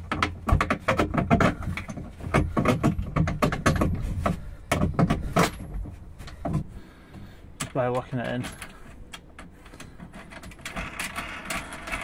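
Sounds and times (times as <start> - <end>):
metal bar knocking on plastic: 0.0 - 5.6.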